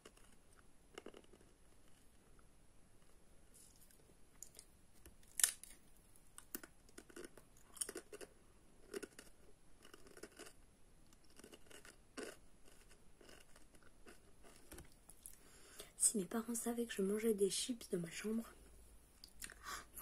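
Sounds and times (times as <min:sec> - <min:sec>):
crunchy chewing: 0:00.0 - 0:02.4, 0:03.8 - 0:15.5
crisp bitten with a snap: 0:04.4 - 0:05.8.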